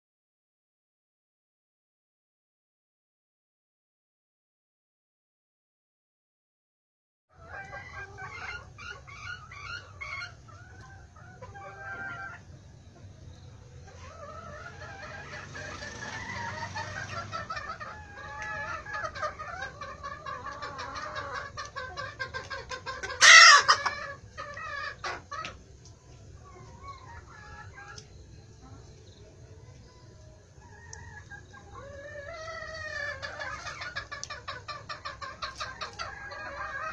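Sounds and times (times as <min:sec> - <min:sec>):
chickens clucking: 0:07.3 - 0:36.9
loud harsh chicken call: 0:13.9 - 0:25.5.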